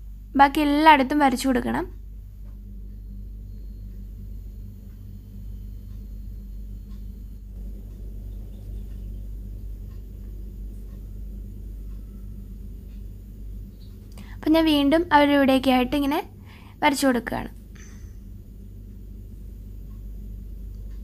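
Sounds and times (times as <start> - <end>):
low room hum: 0.0 - 21.0
faint soft ticks: 6.8 - 7.2.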